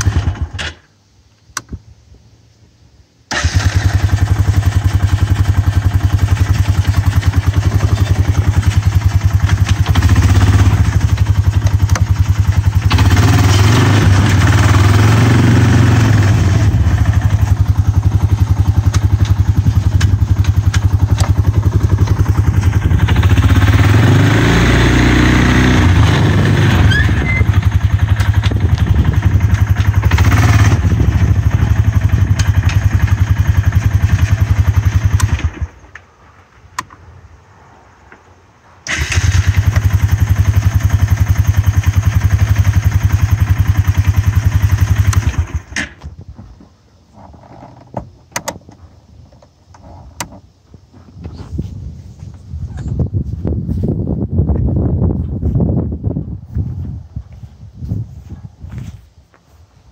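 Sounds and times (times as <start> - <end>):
atv engine idling: 3.3 - 35.8, 38.9 - 45.8.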